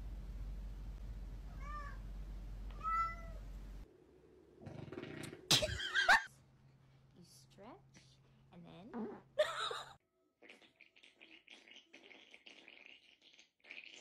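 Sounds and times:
cat meowing: 1.5 - 2.0, 2.7 - 3.4.

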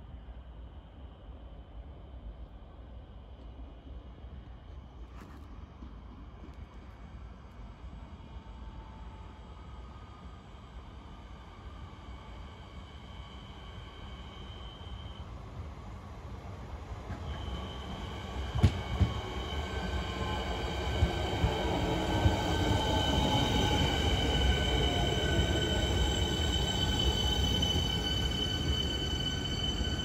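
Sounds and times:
train motor whine: 17.1 - 30.0
wheel squeal: 23.1 - 30.0.

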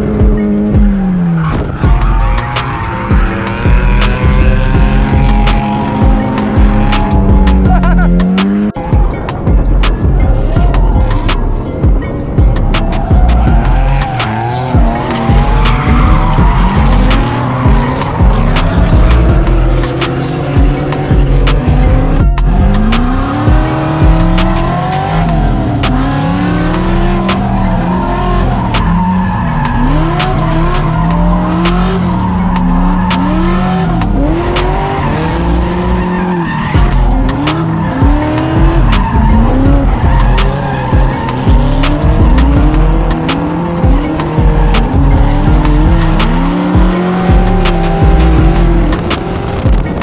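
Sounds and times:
car engine revving: 0.0 - 50.0
tyres squealing: 12.6 - 49.3.

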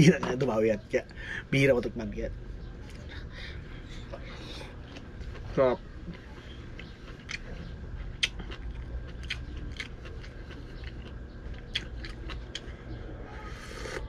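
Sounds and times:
chewing and mouth smacks: 4.8 - 13.0.

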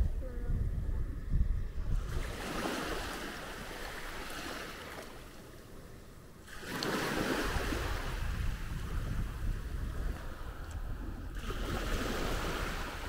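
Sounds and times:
small waves washing on sand: 1.9 - 13.0.

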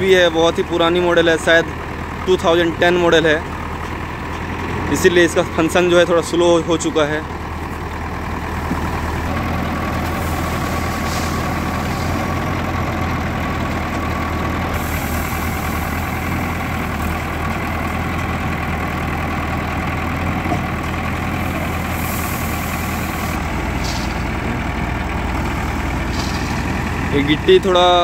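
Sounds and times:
diesel engine running: 0.0 - 28.0
hiss: 10.2 - 12.2, 14.8 - 16.0, 21.5 - 24.2.

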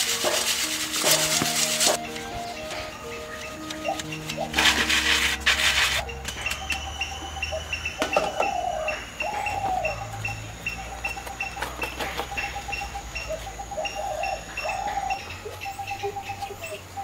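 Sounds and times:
leaf clicks and rustles: 0.0 - 6.6
bird chirping: 1.1 - 17.0
falling whistled bird calls: 1.2 - 17.0.

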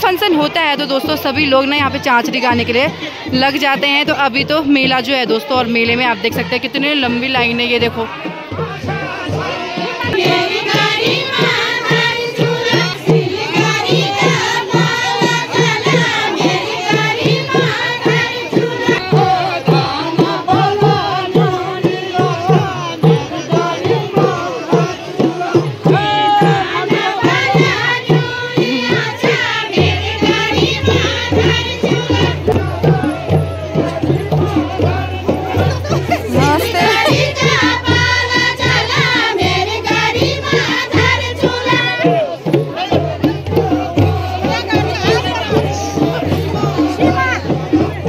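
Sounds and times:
hand drum beating rhythm: 0.0 - 48.0
group singing folk song: 5.4 - 48.0.

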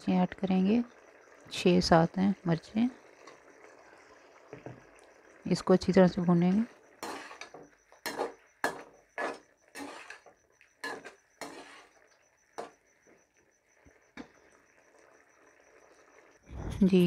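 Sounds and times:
spoon scraping cooking pot: 6.6 - 12.8.

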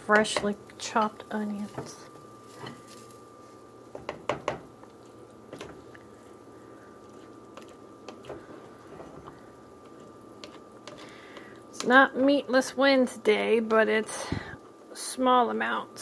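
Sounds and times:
spoon stirring thick soup: 7.0 - 11.9.

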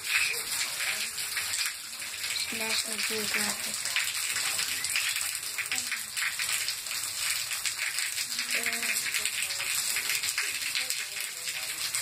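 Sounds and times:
heavy rain on concrete: 0.0 - 12.0.

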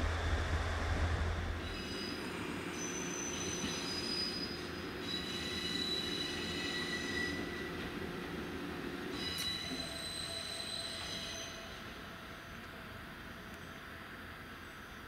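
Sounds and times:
loud low hum: 0.0 - 1.7
railcar running rumble: 0.0 - 15.0
train wheels squealing: 1.6 - 8.3, 9.0 - 12.6.

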